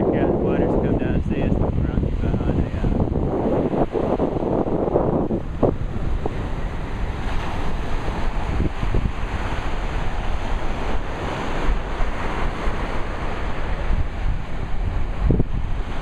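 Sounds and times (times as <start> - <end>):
waves washing up beach: 0.0 - 16.0
wind buffeting microphone: 0.0 - 16.0.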